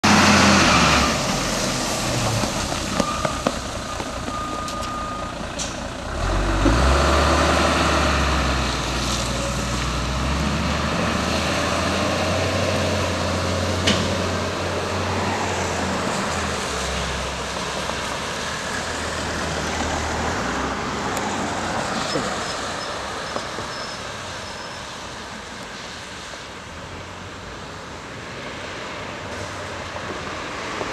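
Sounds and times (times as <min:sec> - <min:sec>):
truck engine pulling away: 0:00.0 - 0:24.2
tyre hiss on wet road: 0:00.1 - 0:04.2, 0:05.5 - 0:12.1, 0:12.7 - 0:30.9.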